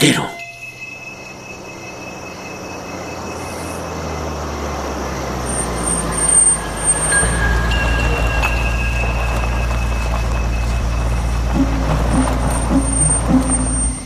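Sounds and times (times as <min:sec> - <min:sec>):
steady high tones: 0:00.0 - 0:14.0
low rumbling drone: 0:00.4 - 0:14.0
flickering high tone: 0:05.6 - 0:14.0.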